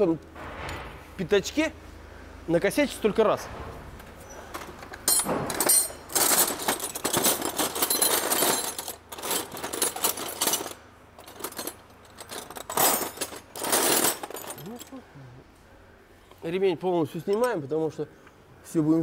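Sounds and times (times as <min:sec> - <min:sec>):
metal tools clattering in drawers: 0:04.2 - 0:15.0.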